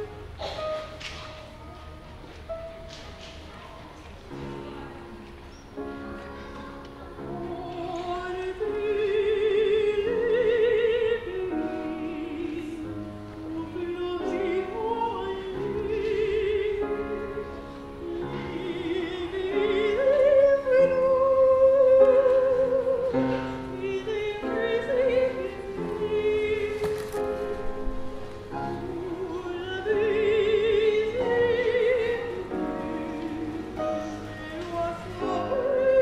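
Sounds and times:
upright piano: 0.0s - 36.0s
soprano singing operatically: 7.3s - 27.4s, 28.6s - 36.0s.

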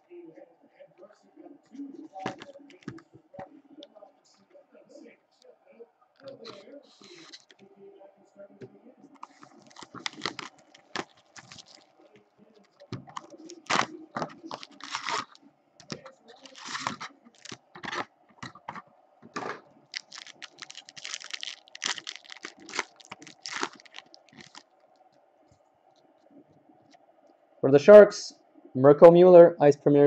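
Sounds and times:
plastic wrapping crinkling and tearing: 9.2s - 12.0s, 12.6s - 18.6s, 19.8s - 24.8s.

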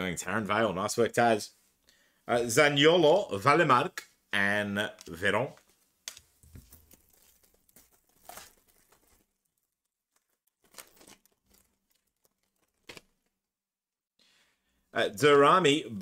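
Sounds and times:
foil wrapper tearing and crinkling: 6.1s - 13.4s.

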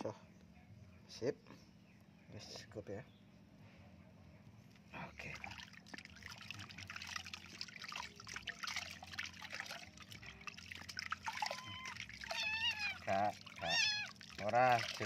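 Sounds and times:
water splashing in a plastic tub: 5.2s - 15.0s.

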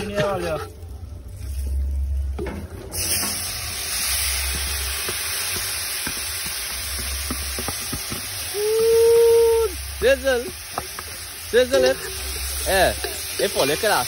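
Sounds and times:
meat sizzling in hot oil: 2.9s - 14.0s.

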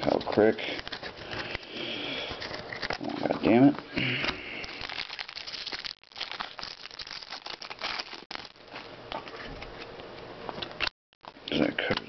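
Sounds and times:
foil wrapper tearing and crinkling: 4.6s - 8.9s.

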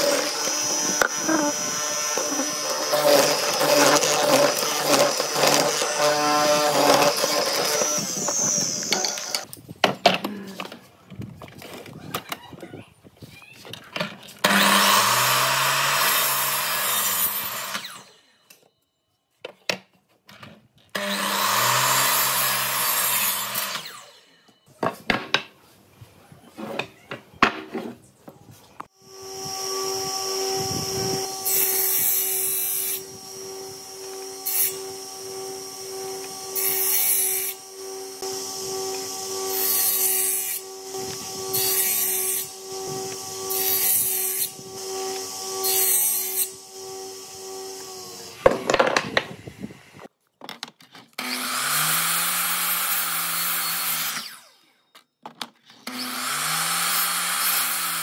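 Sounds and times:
miter saw cutting: 0.0s - 9.5s, 14.4s - 18.4s, 21.0s - 24.5s, 28.9s - 50.1s, 51.2s - 54.7s, 55.8s - 58.0s
table saw running: 0.0s - 9.5s, 14.4s - 18.4s, 21.0s - 24.4s, 29.0s - 50.1s, 55.9s - 58.0s.

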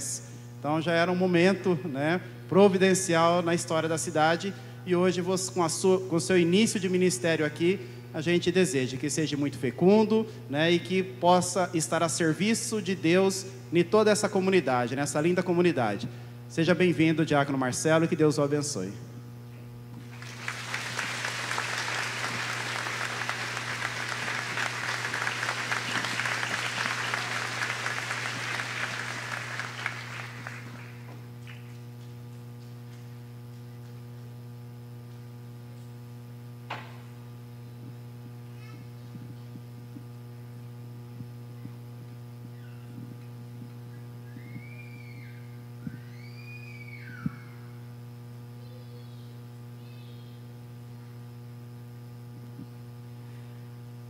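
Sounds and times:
electrical mains hum: 0.0s - 54.0s
congregation applauding: 20.0s - 31.8s.

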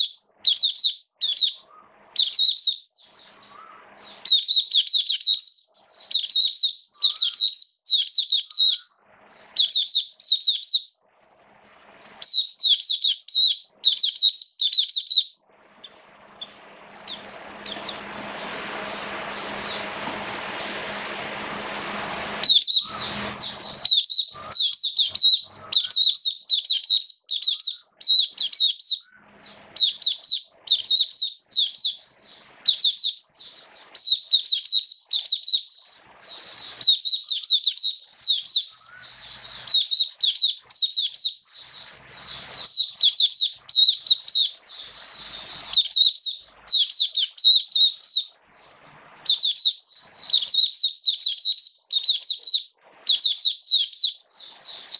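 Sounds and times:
bird twittering song: 0.0s - 11.0s, 11.8s - 20.4s, 22.0s - 54.9s
steady rushing noise: 15.5s - 23.9s.

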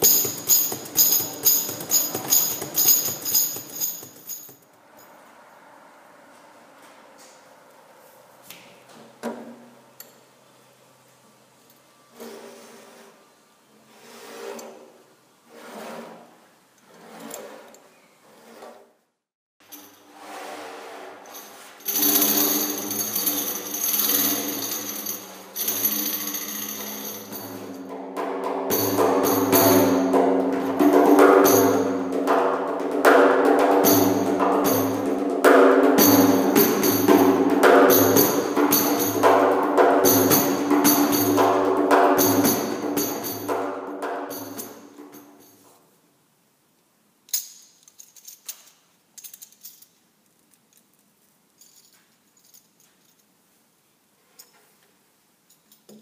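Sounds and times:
frame drum played by hand: 0.0s - 4.2s, 27.5s - 44.6s
metal jingle rattling: 0.0s - 5.2s, 21.3s - 27.9s, 37.9s - 39.4s, 42.2s - 43.6s, 44.3s - 45.6s, 47.3s - 53.4s.

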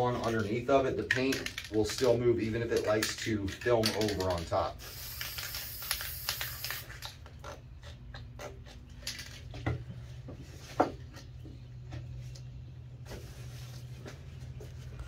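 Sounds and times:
steady low hum: 4.4s - 15.0s.

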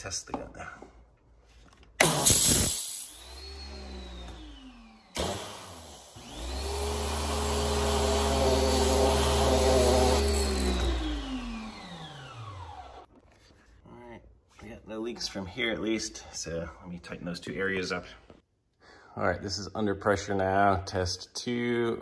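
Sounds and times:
pressure washer water jet hissing: 2.0s - 3.5s, 5.2s - 10.7s
pressure washer motor whining: 2.0s - 13.1s.

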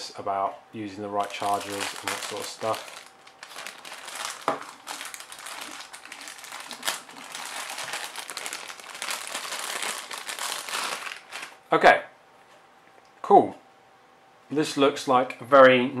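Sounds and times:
plastic bag crinkling: 1.2s - 11.6s.

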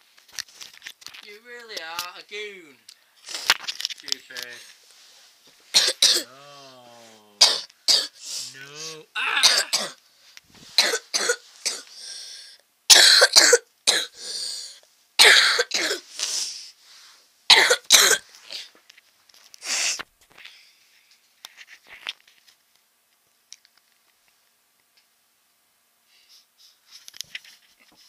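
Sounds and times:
person coughing and grunting: 5.7s - 10.0s, 10.8s - 11.9s, 12.9s - 14.2s, 15.2s - 16.1s, 17.5s - 18.7s.

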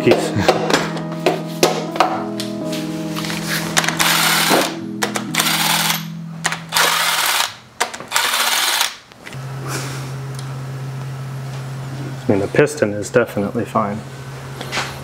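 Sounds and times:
background music with sustained chords: 0.0s - 7.5s
power tool buzzing: 3.8s - 10.7s.

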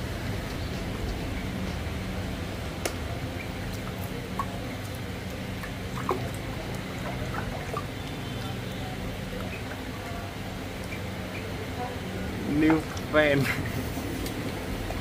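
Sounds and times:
steady low hum: 0.0s - 15.0s
ducklings splashing in water: 0.3s - 14.1s.

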